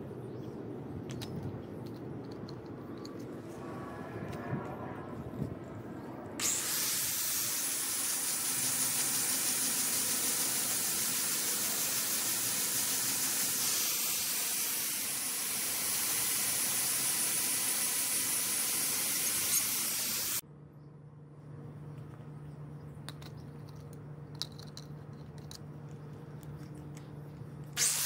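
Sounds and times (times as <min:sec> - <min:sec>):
angle grinder whining on metal: 0:27.8 - 0:28.0.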